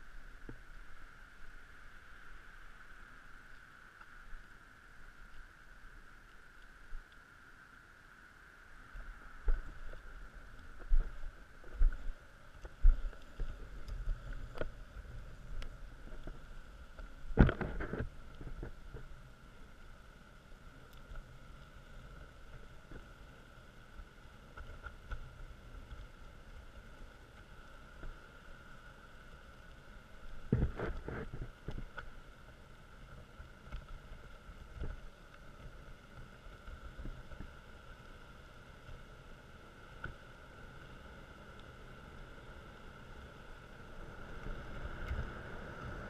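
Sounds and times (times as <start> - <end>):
wind rumble on microphone: 8.9 - 19.4, 30.4 - 32.6.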